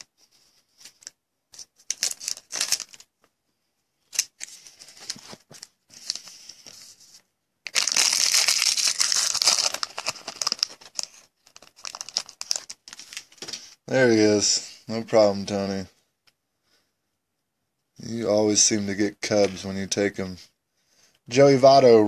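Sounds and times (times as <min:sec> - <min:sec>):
plastic packaging crinkling: 0:00.8 - 0:03.1, 0:07.6 - 0:13.6.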